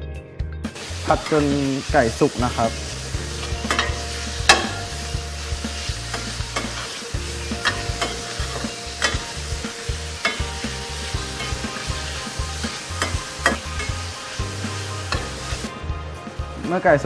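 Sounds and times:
meat sizzling in frying pan: 0.7s - 16.6s
metal spoon scraping pan: 2.6s - 5.1s, 5.8s - 9.6s, 10.2s - 14.2s.

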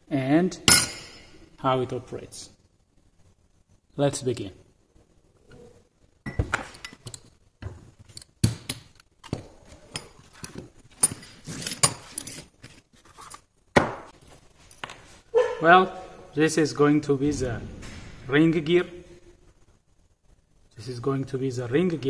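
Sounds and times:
metal gears clinking and knocking: 0.7s - 1.3s.

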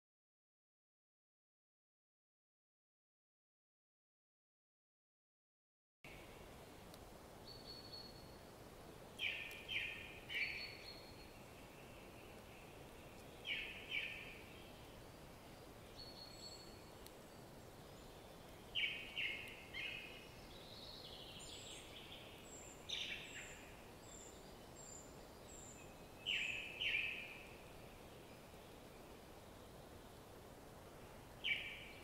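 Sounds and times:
outdoor background hiss: 6.0s - 32.0s
birds calling: 9.2s - 30.1s, 31.0s - 32.0s.

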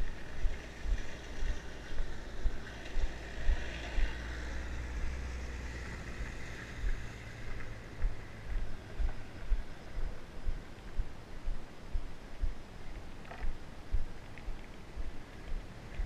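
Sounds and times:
van driving past: 0.0s - 10.4s
low thumps from bumps: 0.0s - 16.0s.

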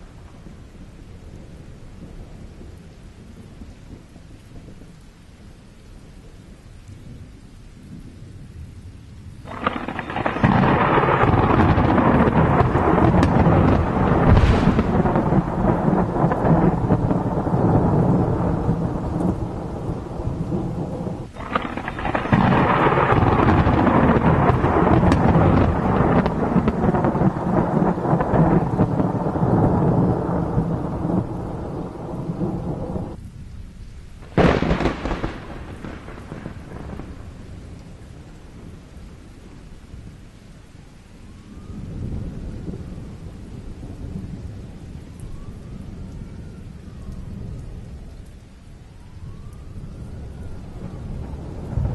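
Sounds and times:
rain hissing: 0.0s - 51.9s
sharp thunder crack: 9.5s - 33.2s, 34.2s - 37.4s
thunder rolling: 9.5s - 33.2s, 34.2s - 38.9s, 49.2s - 51.9s.

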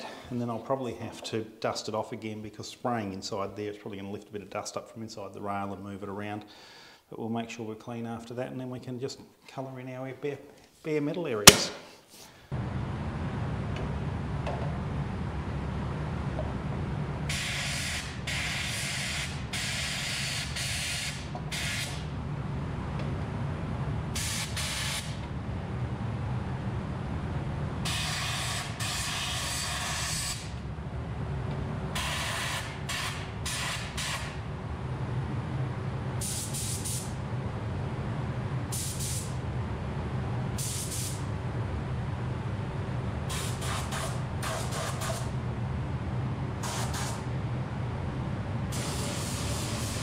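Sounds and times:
steady low hum: 12.4s - 17.4s, 21.3s - 28.8s, 30.4s - 50.0s
spray gun air hiss: 17.3s - 22.1s, 24.2s - 25.2s, 27.9s - 30.5s, 32.0s - 34.4s, 36.2s - 37.2s, 38.7s - 39.4s, 40.6s - 41.2s, 43.3s - 45.3s, 46.6s - 47.3s, 48.7s - 50.0s.

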